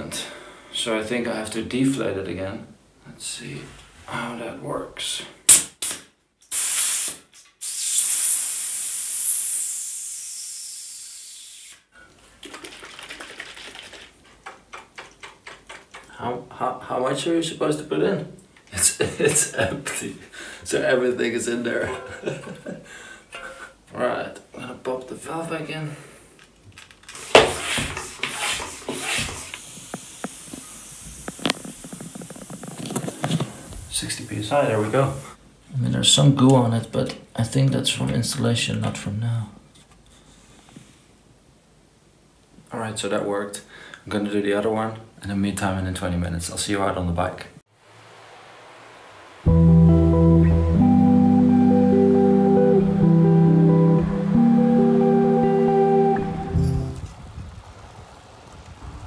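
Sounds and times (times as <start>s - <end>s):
sharp click: 5.5s - 7.6s
air hissing from tire valve: 5.8s - 11.9s, 28.0s - 35.4s
floor pump strokes: 27.2s - 33.8s.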